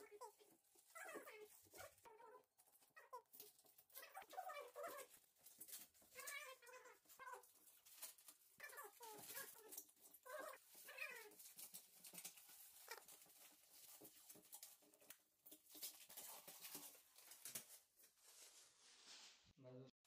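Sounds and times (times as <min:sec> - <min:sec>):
plastic film squeaks: 0:00.0 - 0:14.8
plastic film peeling crackle: 0:03.0 - 0:18.2.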